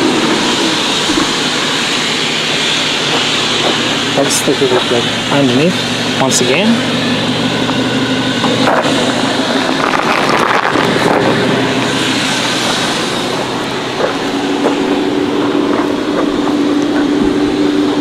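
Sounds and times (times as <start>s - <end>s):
car engine idling: 0.0s - 18.0s
loud rushing noise: 0.0s - 18.0s.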